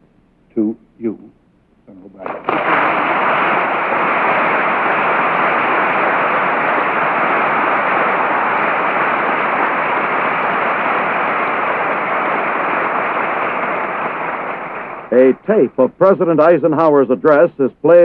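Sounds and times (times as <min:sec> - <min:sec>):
audience applauding: 0:02.2 - 0:15.4.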